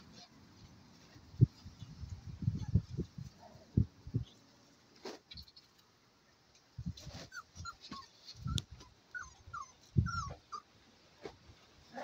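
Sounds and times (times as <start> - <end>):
puppies yipping and squeaking: 7.0 - 10.7.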